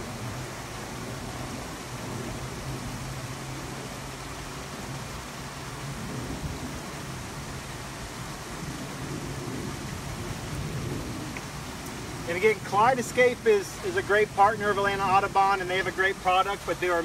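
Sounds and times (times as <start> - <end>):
even hiss: 8.8 - 17.0.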